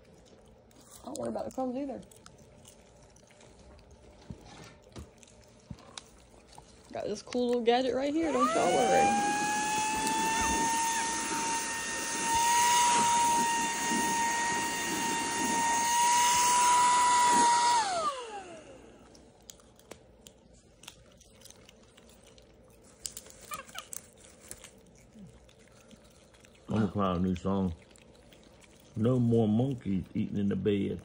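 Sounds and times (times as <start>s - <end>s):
popcorn being eaten: 0.0s - 7.7s, 8.8s - 31.0s
handheld vacuum whining: 8.2s - 19.0s.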